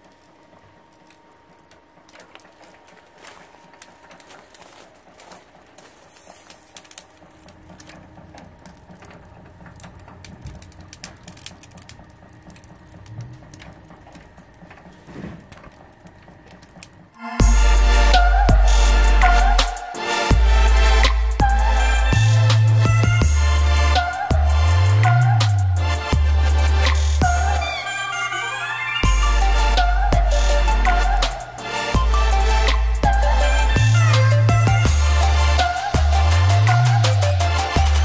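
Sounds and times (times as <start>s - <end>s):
coals crackling: 0.0s - 38.0s
loud music: 17.2s - 38.0s.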